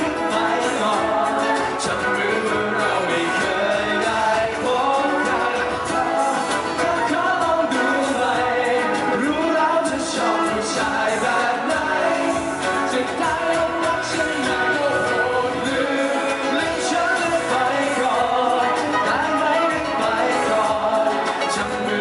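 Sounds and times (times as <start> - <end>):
men singing into microphones: 0.0 - 22.0
strummed acoustic guitar: 0.0 - 22.0.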